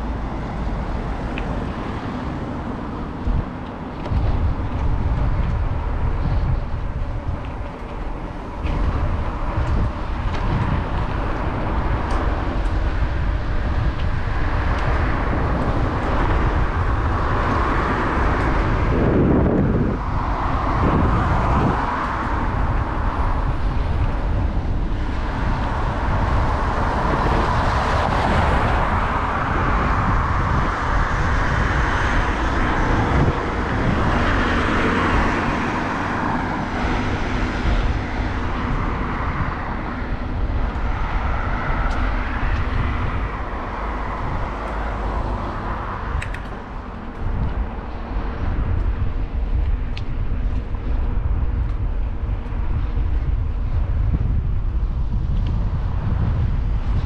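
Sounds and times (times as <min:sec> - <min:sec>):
cars passing: 0:00.0 - 0:57.0
steady low traffic rumble: 0:00.0 - 0:57.0.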